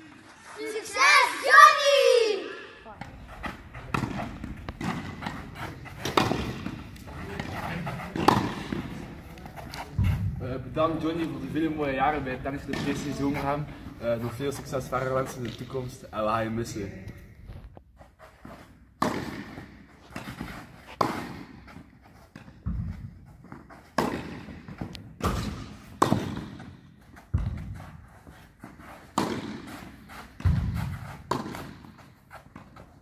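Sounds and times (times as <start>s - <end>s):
racket hitting tennis ball: 3.0s - 10.3s, 19.0s - 32.9s
tennis ball bouncing: 3.0s - 10.3s, 19.0s - 27.9s, 29.0s - 32.8s.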